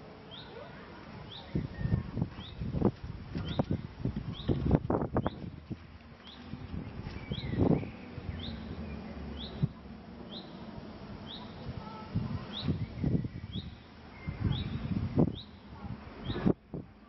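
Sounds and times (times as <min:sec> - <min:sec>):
bird chirping: 0:00.3 - 0:00.6, 0:01.3 - 0:02.6, 0:03.4 - 0:04.6, 0:05.2 - 0:05.5, 0:06.2 - 0:11.6, 0:12.5 - 0:16.5.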